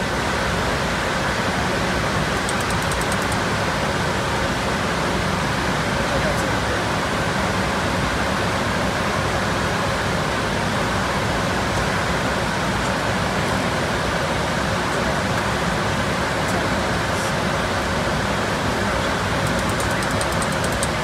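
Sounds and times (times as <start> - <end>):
jet cockpit rushing noise: 0.0 - 5.2, 14.9 - 21.0.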